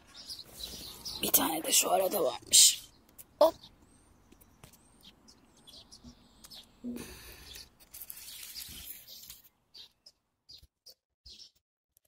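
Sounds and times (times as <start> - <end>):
faint bird chirps: 0.0 - 11.6
leaves and stems rustling: 7.6 - 9.5.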